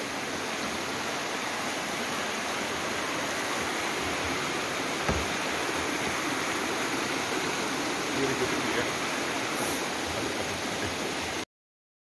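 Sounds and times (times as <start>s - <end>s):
creek water rushing over rocks: 0.0s - 11.4s
low thump: 5.0s - 5.4s.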